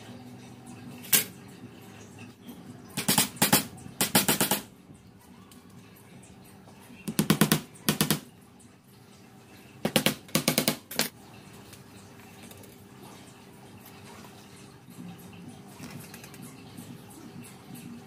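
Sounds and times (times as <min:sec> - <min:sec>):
rapid sharp knocks: 0:03.0 - 0:04.7, 0:09.8 - 0:10.9.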